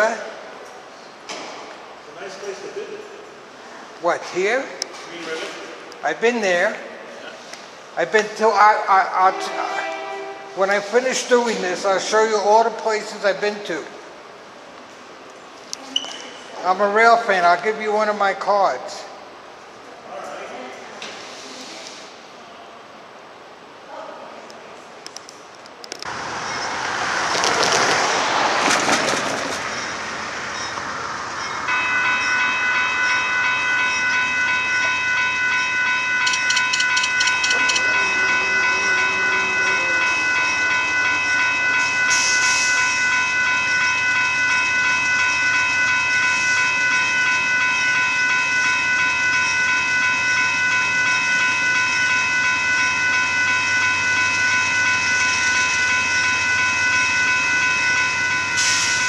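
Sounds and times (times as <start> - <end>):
railroad crossing bell ringing: 0.0 - 0.2, 8.0 - 14.1, 26.1 - 59.0.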